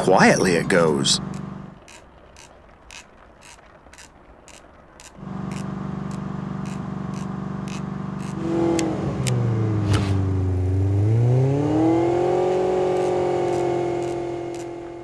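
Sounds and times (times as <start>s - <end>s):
light ticking: 1.2s - 9.4s, 12.7s - 15.0s
cartoon car engine revving: 5.2s - 15.0s.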